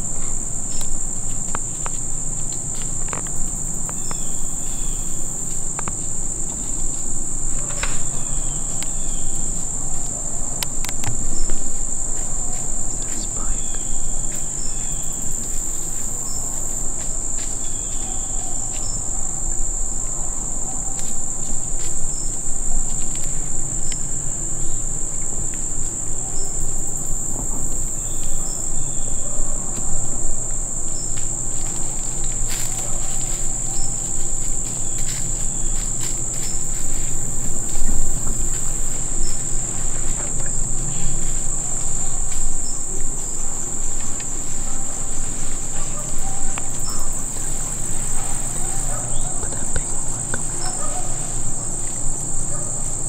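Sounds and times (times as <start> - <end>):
insects droning: 0.0 - 53.0
faint rustles and clicks: 29.7 - 52.2.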